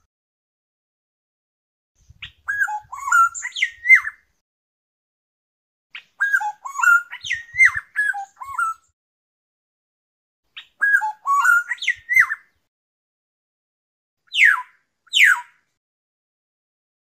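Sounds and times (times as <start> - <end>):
bird singing whistled notes: 2.0 - 4.3, 6.0 - 9.0, 10.6 - 12.6, 14.3 - 15.6.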